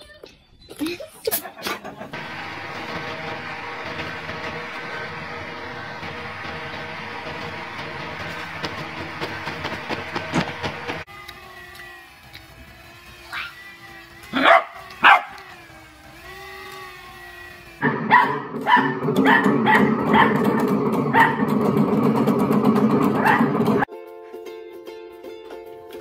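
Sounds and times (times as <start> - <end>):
dog barking: 14.4 - 15.4, 18.1 - 21.5, 23.2 - 23.6.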